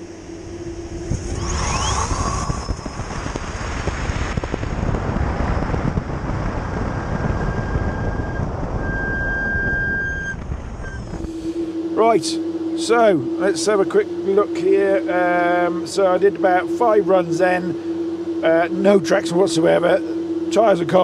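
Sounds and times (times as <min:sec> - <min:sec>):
electric motor whine: 0:00.0 - 0:21.0
wind and road noise: 0:00.0 - 0:21.0.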